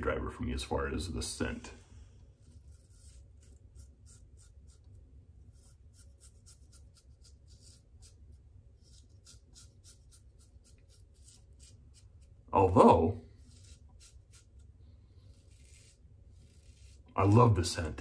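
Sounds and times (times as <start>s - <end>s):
razor blade scratching stubble: 2.4s - 12.4s, 13.4s - 17.2s.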